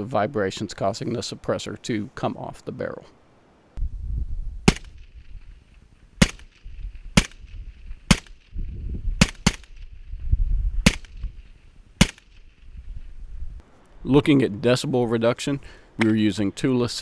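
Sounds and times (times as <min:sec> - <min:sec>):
low rumble: 0:03.8 - 0:04.7
suppressed rifle shots: 0:04.6 - 0:05.2, 0:06.2 - 0:08.5, 0:09.2 - 0:09.9, 0:10.8 - 0:11.3, 0:12.0 - 0:12.5.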